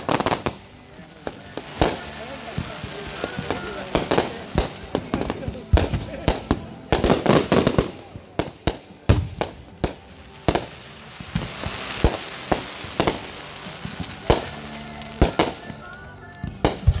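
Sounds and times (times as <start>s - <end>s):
firework bangs: 0.0s - 17.0s
firework crackling and hissing: 0.0s - 17.0s.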